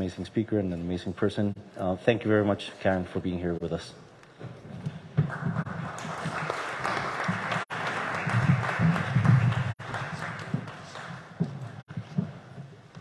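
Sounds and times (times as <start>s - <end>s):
audience applauding: 5.3s - 11.8s.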